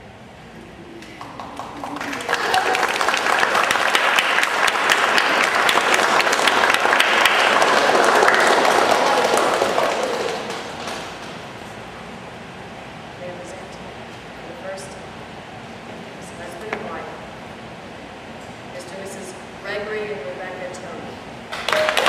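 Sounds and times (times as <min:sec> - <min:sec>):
crowd applauding: 0:01.0 - 0:11.6, 0:21.5 - 0:22.0.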